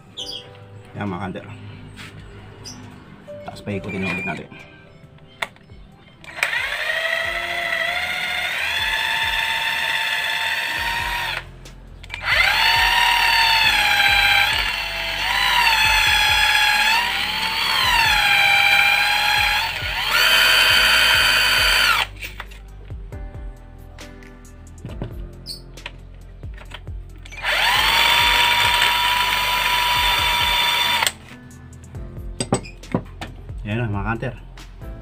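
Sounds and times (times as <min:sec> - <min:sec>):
electric drill motor whining: 0:06.2 - 0:11.5, 0:12.1 - 0:22.2, 0:27.3 - 0:31.2.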